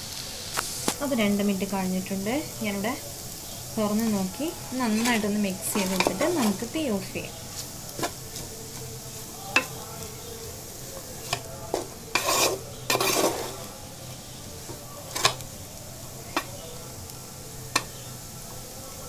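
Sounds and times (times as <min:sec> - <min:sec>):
faint sizzle: 0:00.0 - 0:19.0
spatula scraping steel pot: 0:04.7 - 0:06.8, 0:11.0 - 0:15.4.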